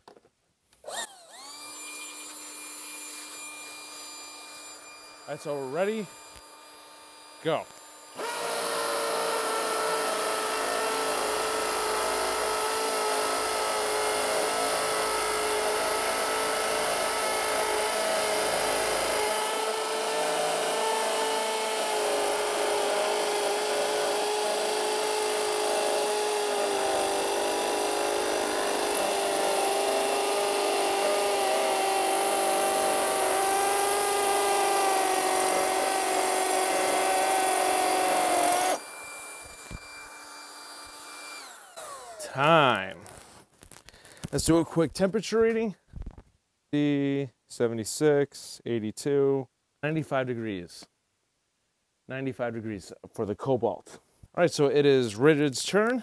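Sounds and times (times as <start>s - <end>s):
hammer drill drilling into concrete: 0.8s - 43.4s.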